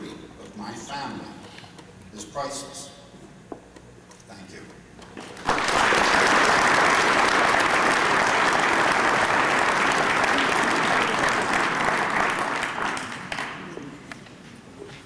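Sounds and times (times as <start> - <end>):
large audience applauding: 5.3 - 14.0.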